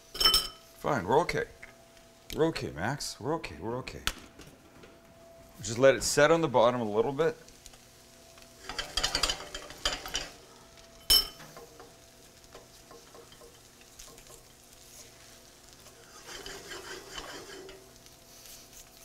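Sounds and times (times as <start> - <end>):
faint sizzling: 4.7 - 19.0
utensil stirring and scraping pan: 8.5 - 10.4, 11.4 - 19.0.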